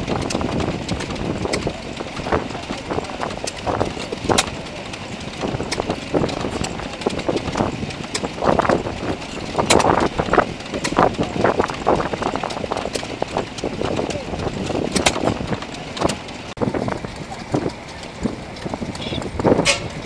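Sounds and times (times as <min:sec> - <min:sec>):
stationary engines knocking and clattering: 0:00.0 - 0:20.0.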